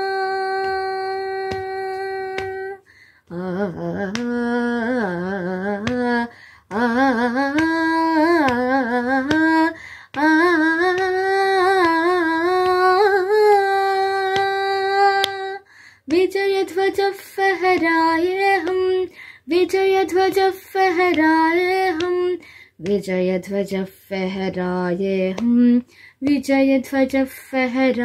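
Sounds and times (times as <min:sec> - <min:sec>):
girl singing solo: 0:00.0 - 0:28.0
singer breathing: 0:02.8 - 0:03.3, 0:06.3 - 0:06.7, 0:09.7 - 0:10.2, 0:15.6 - 0:16.1, 0:19.1 - 0:19.5, 0:22.4 - 0:22.8, 0:25.8 - 0:26.2.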